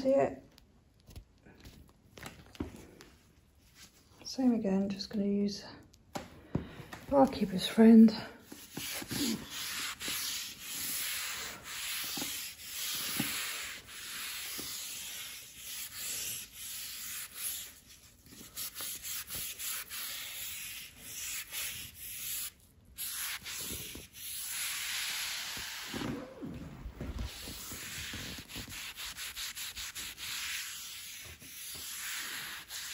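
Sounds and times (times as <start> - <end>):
scrubbing powder on a worktop: 8.4 - 26.0, 27.0 - 32.9.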